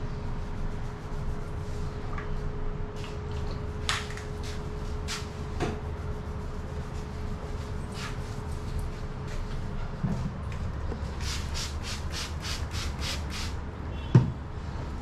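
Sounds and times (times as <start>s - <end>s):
ceiling fans humming: 0.0s - 15.0s.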